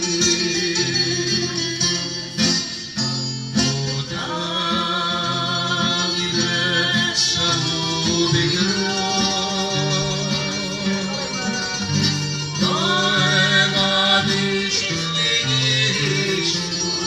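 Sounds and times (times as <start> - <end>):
guitar accompaniment: 0.0 - 17.0
woman singing into microphone: 12.6 - 17.0.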